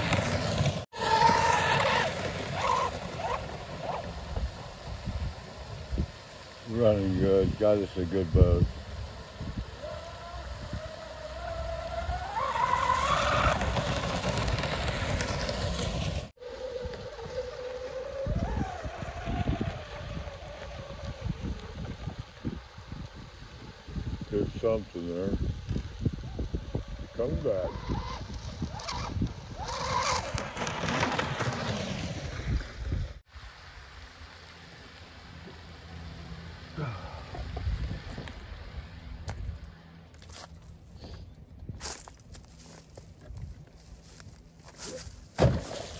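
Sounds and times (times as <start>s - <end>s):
distant motor whine of rc boat: 0.0s - 42.2s
quiet outdoor ambience: 0.0s - 45.9s
wind buffeting microphone: 2.1s - 12.3s, 16.8s - 30.8s, 41.0s - 45.3s
electric motors whining: 7.8s - 22.2s.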